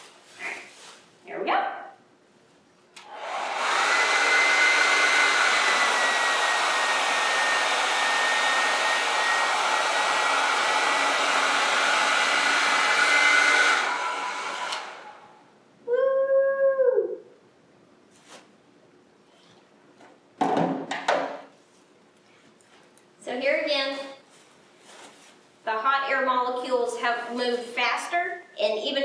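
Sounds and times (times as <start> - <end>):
hair dryer whining: 3.0 - 15.4.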